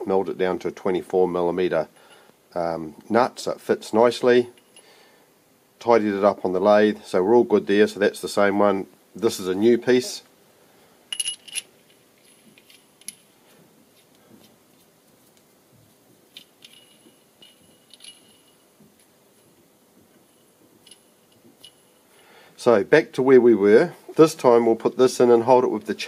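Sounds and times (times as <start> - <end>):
steel parts clinking: 11.1 - 13.3, 16.3 - 18.7, 20.2 - 22.1.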